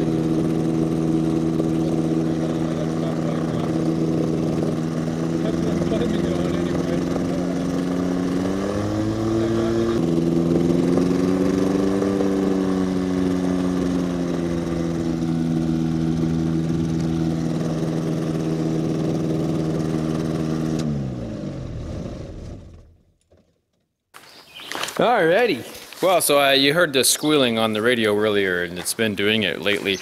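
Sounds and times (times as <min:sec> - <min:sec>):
ultralight engine running: 0:00.0 - 0:23.0
engine and propeller spinning down: 0:00.0 - 0:23.4.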